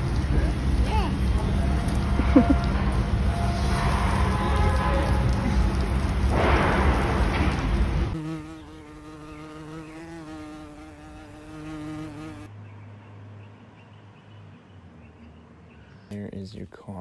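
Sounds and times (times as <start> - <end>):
loud rush of noise: 0.0 - 8.2
flying insect buzzing: 8.1 - 12.5.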